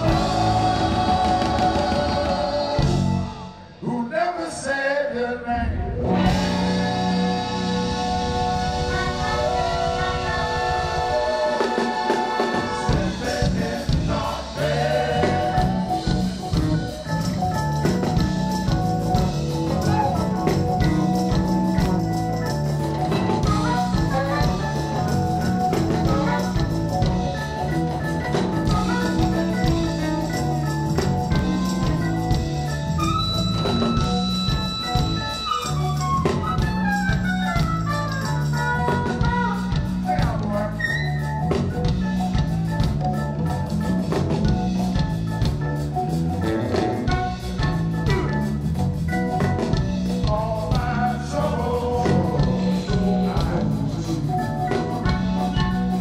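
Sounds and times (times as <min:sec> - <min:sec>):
organ: 0:00.0 - 0:03.8, 0:06.0 - 0:56.0
bass line: 0:00.0 - 0:03.9, 0:05.5 - 0:56.0
drums: 0:00.0 - 0:56.0
saxophone: 0:06.1 - 0:50.1
harmonica: 0:06.3 - 0:50.0.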